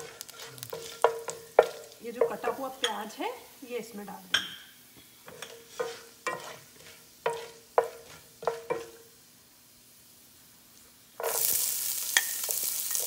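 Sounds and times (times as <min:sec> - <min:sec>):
onions sizzling loudly in oil: 0:00.0 - 0:13.0
spices frying faintly in oil: 0:00.0 - 0:13.0
wooden spatula knocking on pan: 0:00.8 - 0:03.0, 0:07.3 - 0:09.0.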